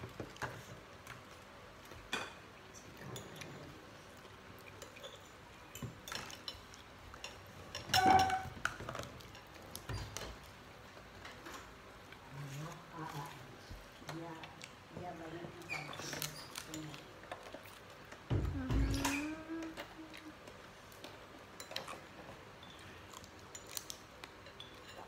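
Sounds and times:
dishes clinking on a table: 2.1 - 3.6, 4.8 - 10.4.

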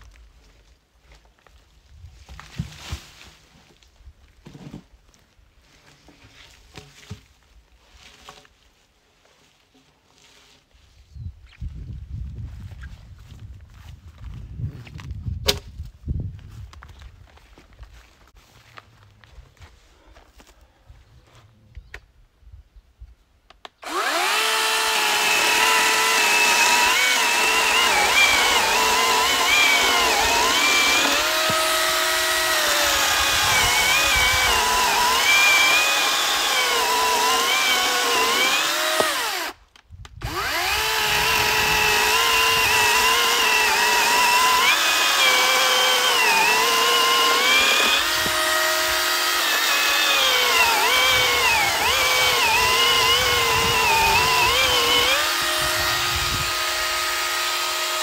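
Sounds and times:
electric chainsaw cutting log: 23.8 - 39.6, 40.2 - 58.0.

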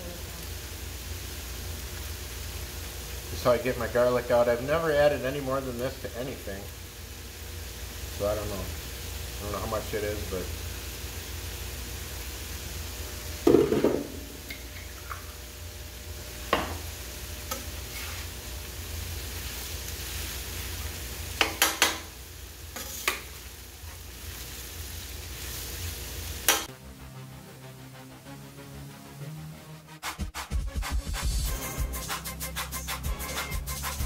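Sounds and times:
food sizzling on a griddle: 0.0 - 26.7, 31.2 - 34.0
background music: 26.7 - 34.0.

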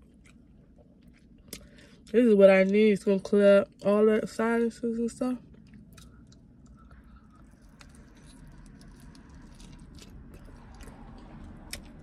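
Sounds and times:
chewing with mouth clicks: 0.0 - 2.2, 5.5 - 12.0.

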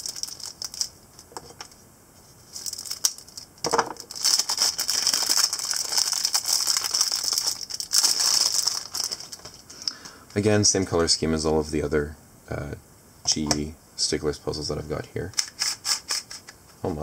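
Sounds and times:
plastic wrapping crinkling: 0.0 - 1.8, 2.4 - 9.7.

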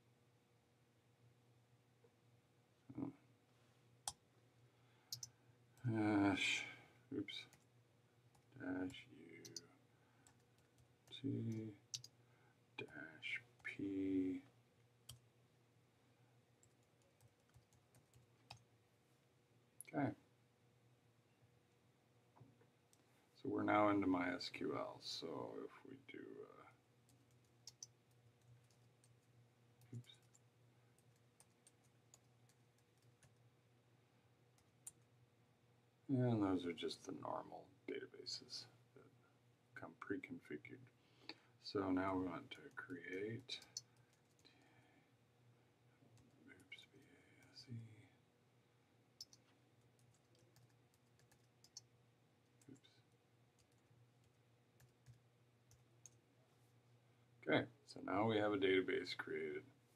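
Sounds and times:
faint low hum: 0.0 - 59.9
computer keyboard clicks: 5.1 - 5.3, 49.2 - 51.9
slow typing on keyboard: 5.1 - 5.9, 7.4 - 7.7, 8.3 - 12.2, 16.6 - 18.7, 27.0 - 33.5, 42.6 - 44.7, 46.2 - 47.5, 49.2 - 56.2.

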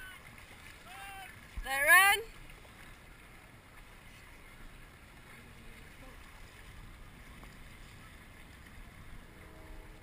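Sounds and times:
river water washing along boat hull: 0.0 - 10.0.

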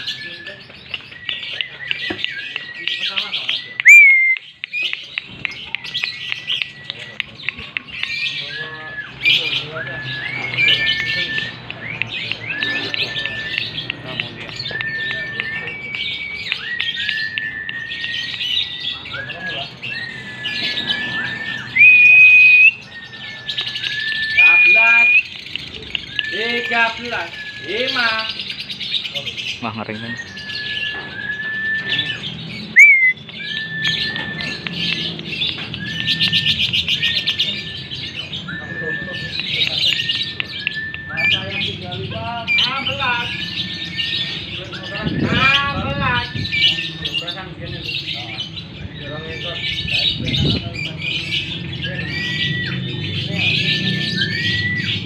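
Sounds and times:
whistle-like bird notes: 0.0 - 5.0, 5.9 - 28.6, 30.2 - 47.2
lovebirds chattering and chirping: 0.0 - 55.0
long whistled notes: 3.8 - 4.4, 8.6 - 25.3, 30.4 - 35.0.

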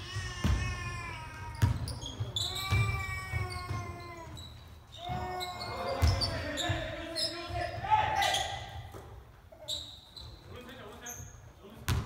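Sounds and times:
sneakers squeaking on floor: 0.0 - 12.0.

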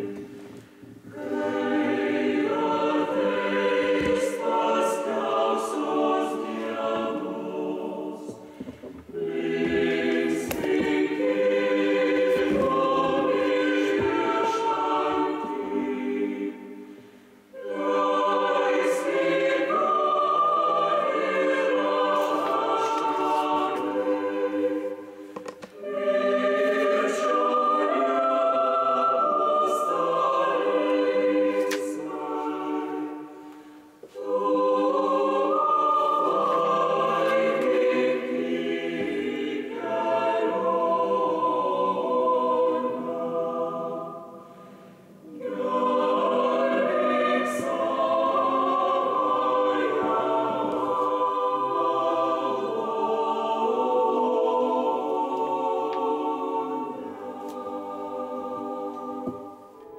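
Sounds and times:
choir singing a hymn: 0.0 - 59.9.

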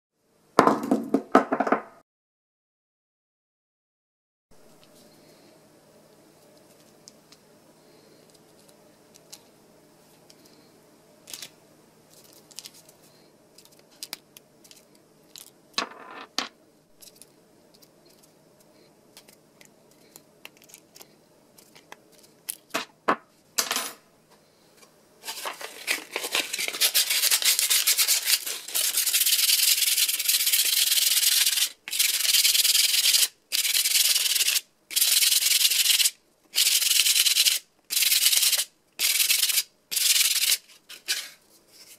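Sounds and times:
hand-sanding with sandpaper: 26.6 - 40.6.

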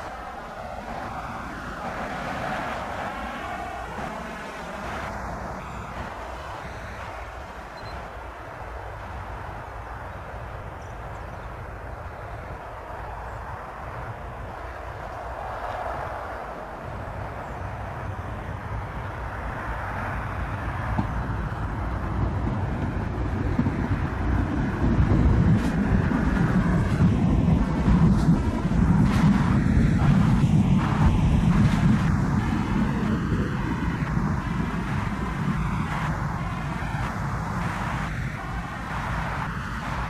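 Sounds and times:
jet engines spooling up: 0.0 - 40.0.

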